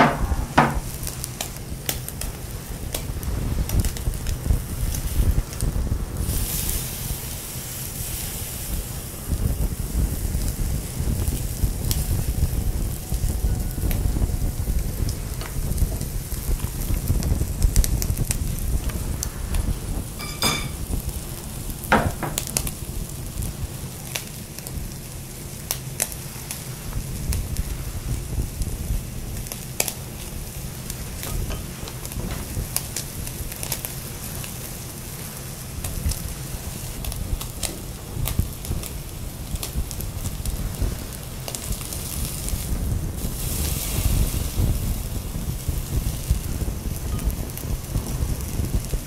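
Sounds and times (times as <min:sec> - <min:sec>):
steak sizzling on grill: 0:00.0 - 0:49.0
sharp light clink: 0:20.2 - 0:20.9.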